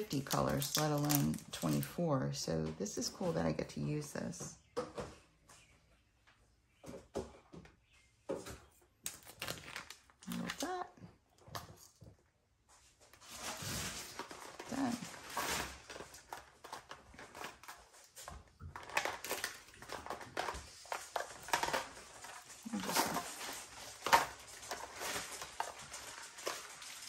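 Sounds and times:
plastic containers clicking: 0.0s - 2.0s, 15.9s - 27.0s
label sheet rustling: 20.9s - 27.0s.

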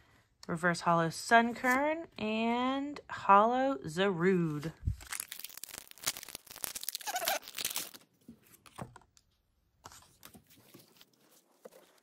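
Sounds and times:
foil wrapper tearing and crinkling: 4.9s - 8.1s.

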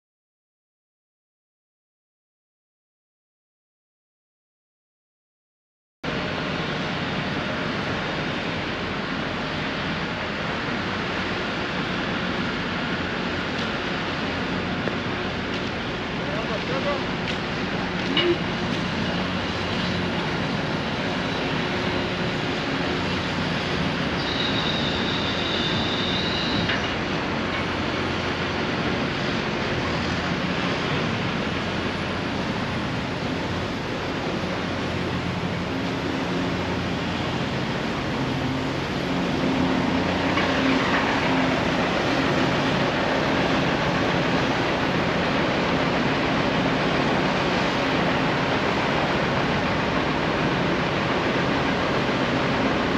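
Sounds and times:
city street and construction noise: 6.0s - 52.9s.

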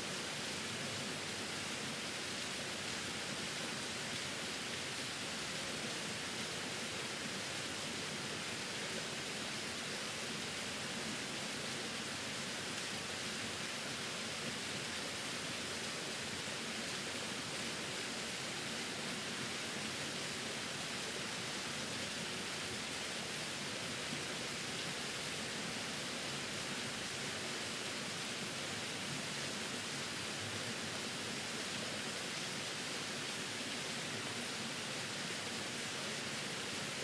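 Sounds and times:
small waterfall rushing: 0.0s - 37.0s.

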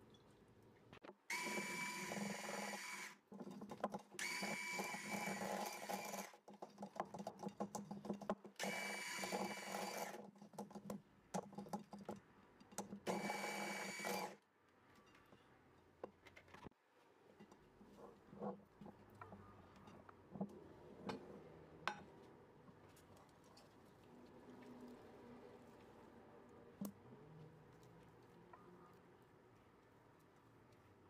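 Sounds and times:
electric hand mixer whirring: 1.3s - 3.2s, 4.2s - 6.3s, 8.6s - 10.2s, 13.1s - 14.4s.

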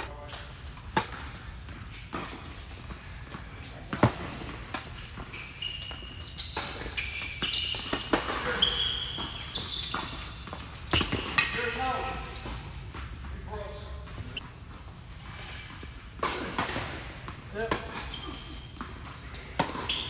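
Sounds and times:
tennis balls struck by rackets: 0.0s - 5.4s, 6.5s - 13.3s, 15.8s - 18.1s, 18.7s - 20.0s
shoes squeaking on court: 0.0s - 20.0s.

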